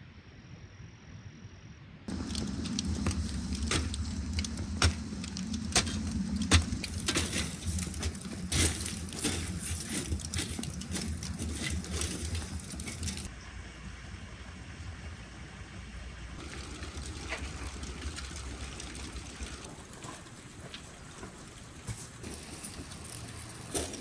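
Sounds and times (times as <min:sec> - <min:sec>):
metal poker scraping charcoal: 0:02.1 - 0:13.3
steady low rumble: 0:02.1 - 0:24.0.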